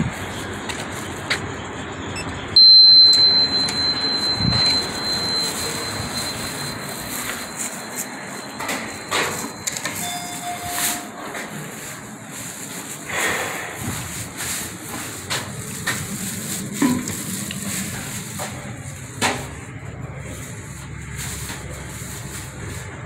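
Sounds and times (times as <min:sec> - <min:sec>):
room and street noise: 0:00.0 - 0:23.0
high-pitched electronic tone: 0:02.1 - 0:11.3
short low beep: 0:02.1 - 0:11.3.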